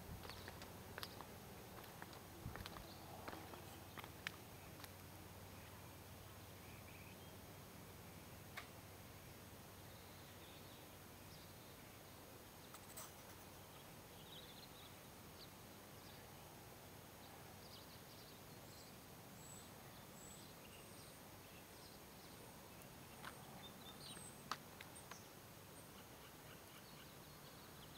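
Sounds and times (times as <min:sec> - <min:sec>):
faint bird chirps: 0:17.2 - 0:27.9.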